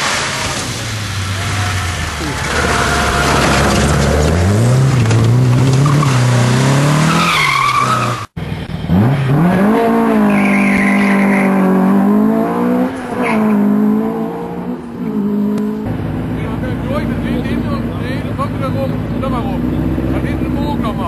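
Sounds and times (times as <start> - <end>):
car engine revving hard: 1.4 - 8.2, 8.8 - 21.0
tyre squeal: 10.2 - 11.6.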